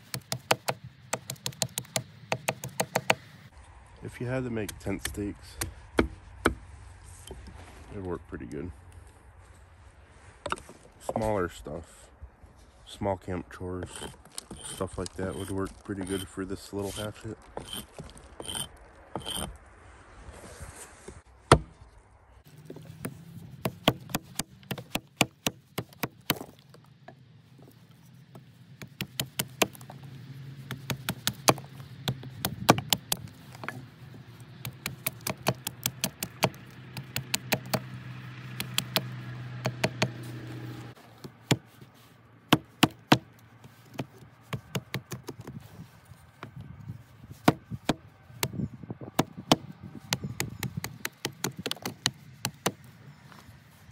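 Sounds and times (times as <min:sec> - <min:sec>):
hatchet knocking on branch: 0:00.0 - 0:03.3, 0:23.0 - 0:26.6, 0:28.8 - 0:29.9, 0:30.7 - 0:33.8, 0:34.6 - 0:37.9, 0:38.5 - 0:40.2, 0:42.5 - 0:43.3, 0:47.4 - 0:48.6, 0:49.2 - 0:52.8.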